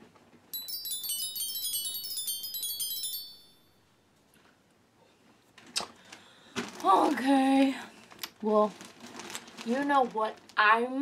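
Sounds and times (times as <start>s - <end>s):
cascade of bell-like chimes: 0.6s - 3.8s.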